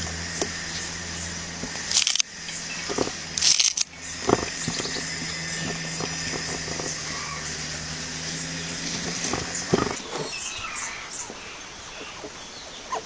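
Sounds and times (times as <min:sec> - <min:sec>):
steady hum: 0:00.0 - 0:12.9
herbs rustling and ticking: 0:01.5 - 0:10.4.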